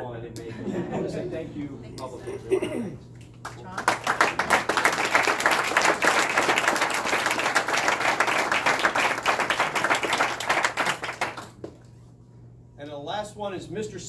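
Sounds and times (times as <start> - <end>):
crowd applauding: 3.4 - 11.8.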